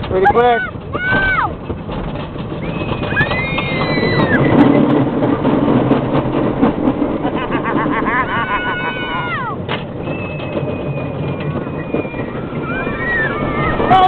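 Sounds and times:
roller coaster rumbling on track: 0.0s - 14.0s
wind blowing past: 2.5s - 14.0s
high-pitched wail: 3.1s - 4.5s, 7.8s - 9.6s, 10.3s - 14.0s.

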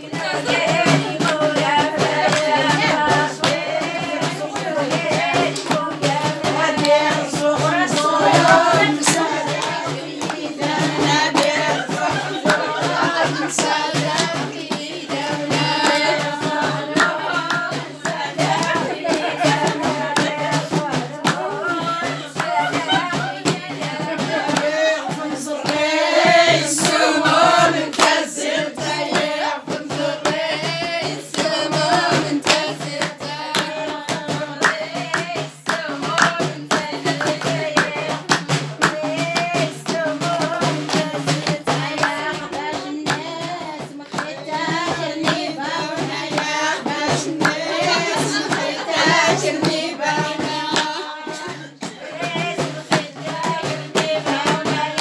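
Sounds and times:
rhythmic hand clapping: 0.0s - 55.0s
voices singing together: 0.0s - 55.0s.

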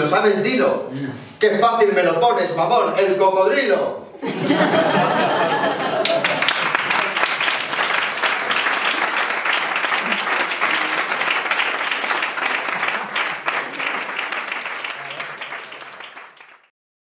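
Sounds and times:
audience applauding: 5.0s - 16.7s.

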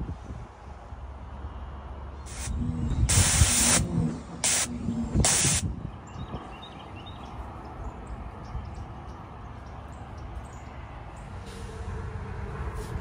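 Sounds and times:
hissing spray bursts: 2.3s - 5.7s.

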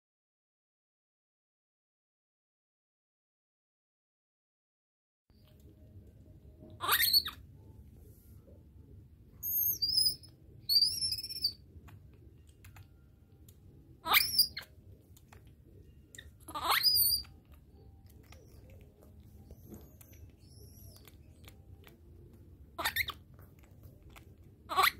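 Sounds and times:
baby monkey squeaking: 6.7s - 7.4s, 9.4s - 12.0s, 14.0s - 14.8s, 16.1s - 22.0s, 22.6s - 23.7s, 24.6s - 24.9s.

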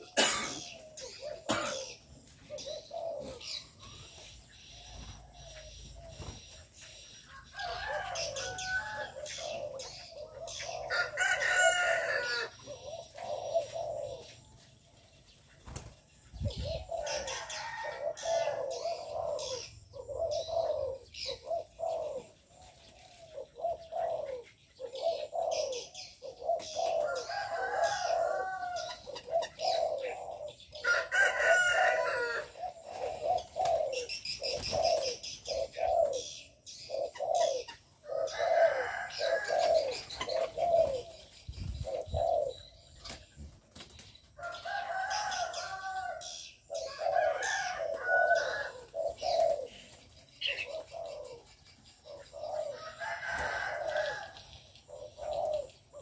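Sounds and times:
doves cooing: 0.0s - 56.0s
small birds chirping: 0.0s - 56.0s.

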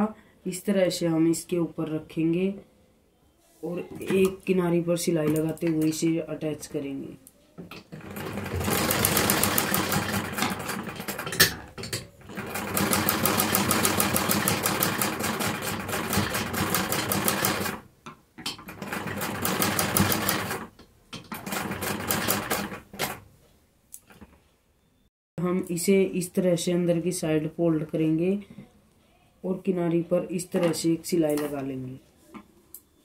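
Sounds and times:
sewing machine running fast: 8.0s - 11.4s, 12.3s - 17.8s, 18.8s - 20.7s, 21.4s - 23.2s.

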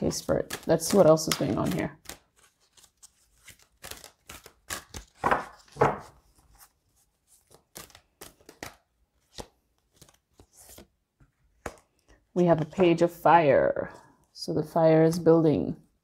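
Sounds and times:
cards being shuffled: 0.0s - 12.2s.

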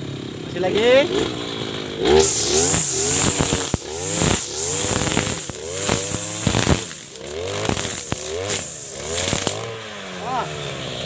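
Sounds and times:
brush cutter engine revving: 0.6s - 11.0s
trimmer line ticking on stems: 2.2s - 9.7s.

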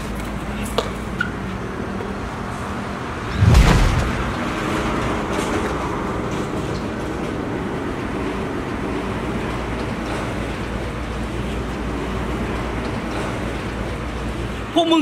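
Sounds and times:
steady rumbling background noise: 0.0s - 15.0s
dull thump: 3.4s - 4.4s.

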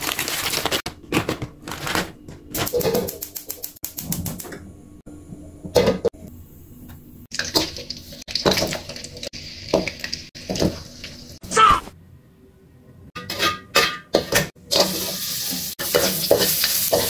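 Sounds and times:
hot oil sizzling: 7.3s - 11.4s, 14.6s - 17.0s
wok knocking and clinking: 13.2s - 14.8s.

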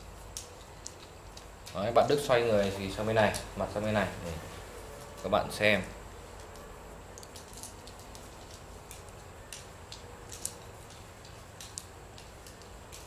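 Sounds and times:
low room hiss: 0.0s - 13.0s
nunchaku sticks ticking against hand: 6.4s - 13.0s.

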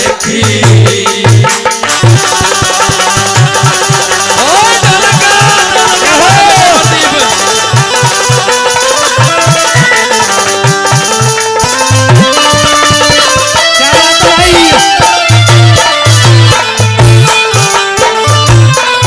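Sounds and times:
hand drums beating: 0.0s - 19.0s
wavering melody line: 4.4s - 18.7s.

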